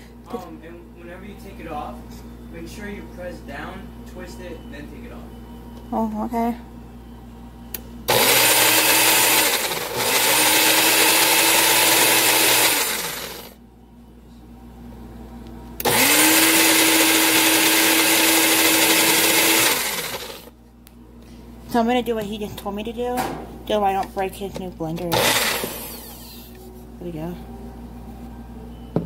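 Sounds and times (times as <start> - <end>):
blender motor running: 8.1 - 13.6, 15.8 - 20.5, 25.1 - 26.5.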